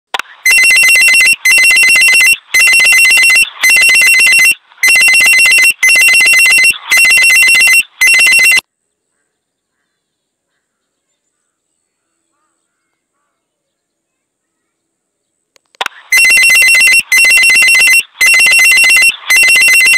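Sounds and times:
electronic ringing bursts: 0.4s - 8.6s, 16.0s - 19.9s.

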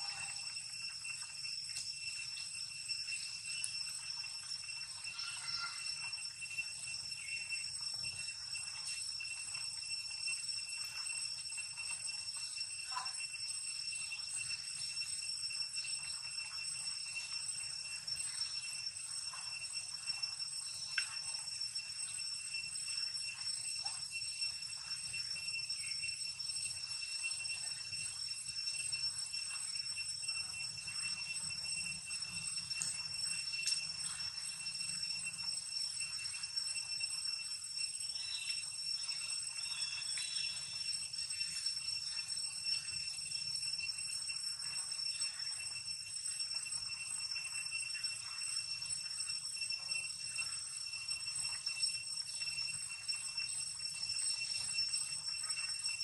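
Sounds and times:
insects droning: 0.0s - 56.0s
faint short chirps and ticks: 39.6s - 40.9s.

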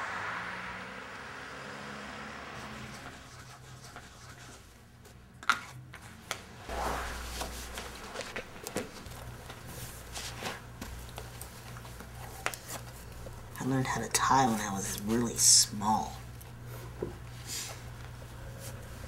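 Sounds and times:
clothes rustling: 6.6s - 13.4s.

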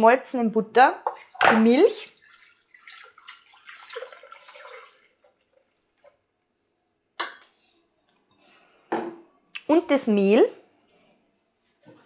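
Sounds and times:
milk pouring into bowl: 1.9s - 6.8s.

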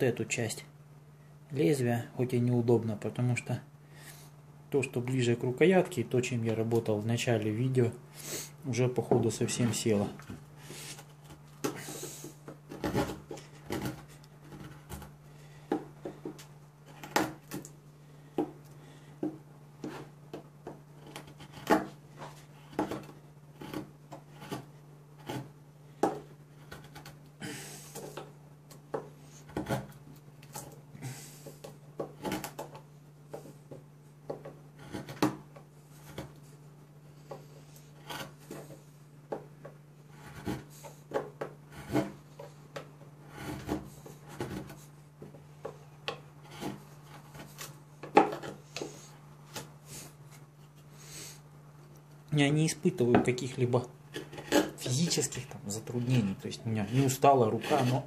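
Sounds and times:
knife scraping wood: 8.2s - 17.8s, 19.8s - 39.4s, 40.0s - 51.4s, 53.0s - 58.0s.

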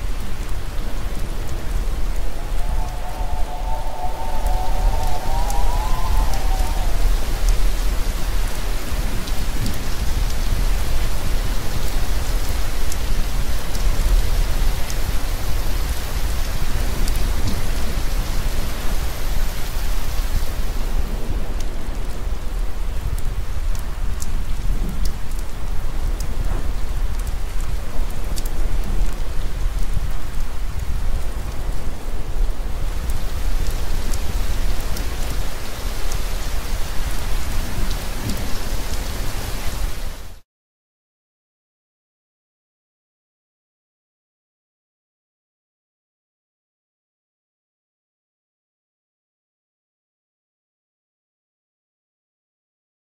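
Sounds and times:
heavy rain falling: 0.0s - 40.4s
low rumble: 1.2s - 8.2s
high wavering tone: 2.0s - 7.5s.

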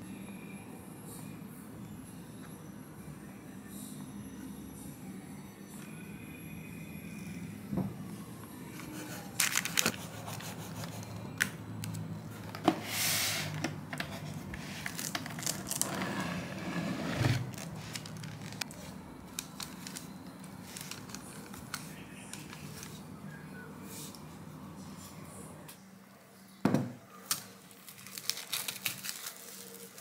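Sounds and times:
cling film crinkling: 9.4s - 10.4s, 14.6s - 16.0s, 17.4s - 23.0s, 27.3s - 30.0s
cling film pulled and torn: 14.8s - 15.9s, 27.3s - 30.0s.

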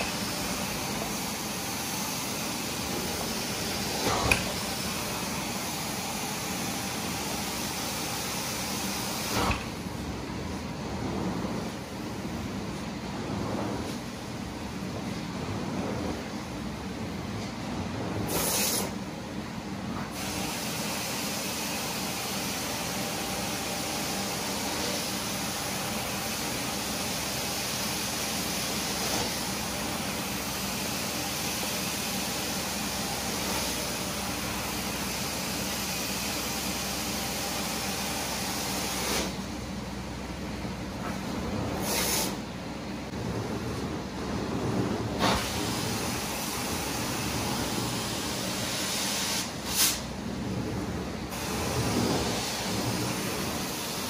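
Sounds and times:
carpet extractor hissing: 0.0s - 10.2s, 45.0s - 50.2s, 51.3s - 54.0s.

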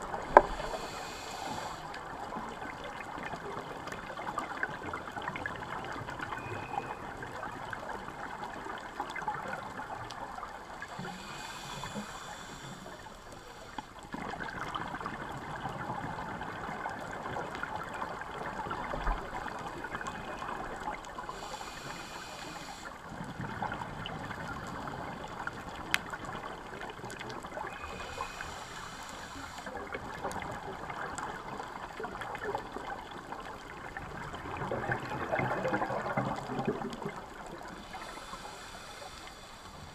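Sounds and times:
exhaled air bubbling: 0.0s - 39.9s
underwater wash: 0.0s - 39.9s
regulator hissing breaths: 0.4s - 2.2s, 10.8s - 14.0s, 21.2s - 23.1s, 27.7s - 29.8s, 37.6s - 39.9s.

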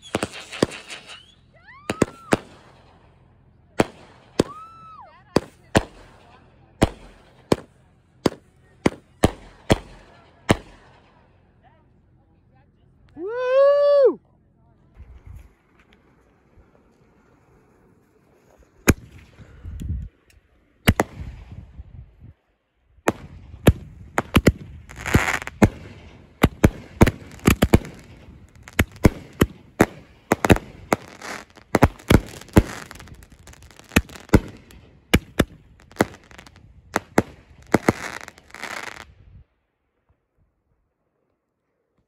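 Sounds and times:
firework crackle: 0.0s - 11.2s, 15.1s - 19.6s, 20.8s - 21.6s, 23.0s - 39.2s
firework bangs: 0.0s - 11.5s, 16.4s - 19.6s, 20.8s - 22.2s, 23.0s - 39.3s.

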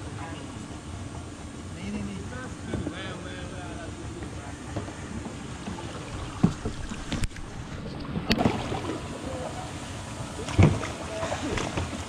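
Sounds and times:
paddle knocking on plastic hull: 4.7s - 8.8s
water swishing from paddle: 5.0s - 12.0s.

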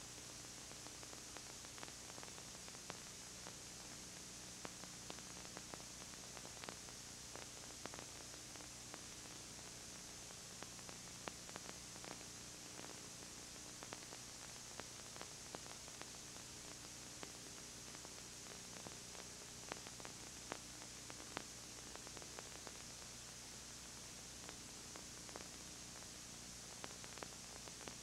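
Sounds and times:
faint clicks and crackles: 0.0s - 28.0s
low electrical hum: 0.0s - 28.0s
tape hiss: 0.0s - 28.0s.

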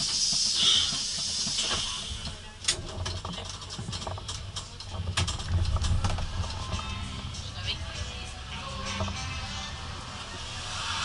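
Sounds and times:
compressed air hiss: 0.0s - 2.2s, 10.5s - 11.0s
bus engine rumbling: 0.0s - 11.0s.

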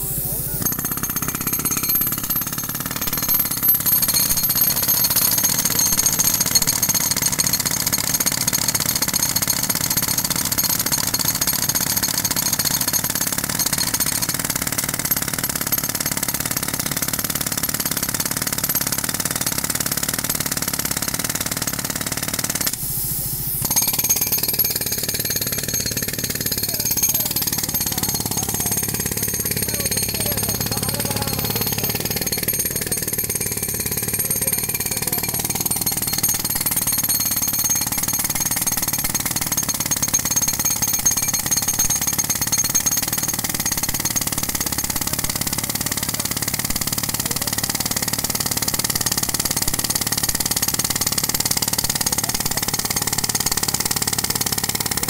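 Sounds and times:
jackhammers hammering concrete: 0.0s - 55.0s.

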